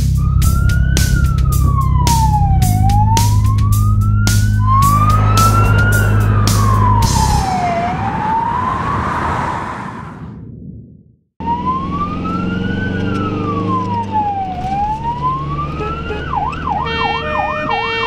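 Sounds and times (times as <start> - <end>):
loud music with drums and bass: 0.0 - 7.4
siren wailing: 0.2 - 10.3, 11.4 - 18.0.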